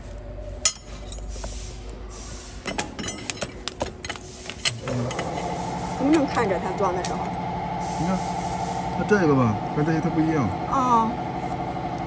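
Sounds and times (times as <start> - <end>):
machine hum: 3.6 - 12.0.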